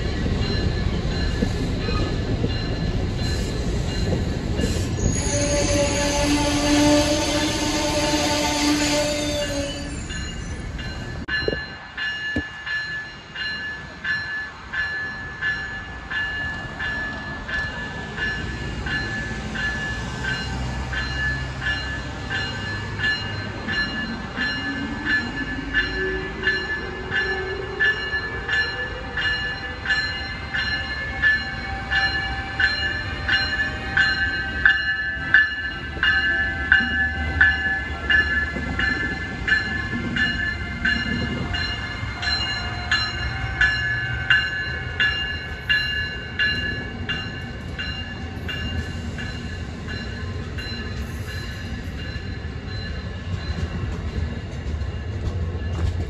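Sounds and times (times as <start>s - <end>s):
train wheels clicking over rail joints: 34.0s - 56.0s.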